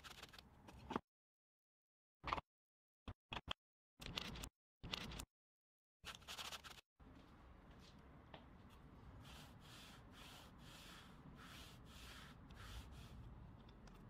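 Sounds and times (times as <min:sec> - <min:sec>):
faint rubbing or scratching strokes: 0:09.1 - 0:13.3.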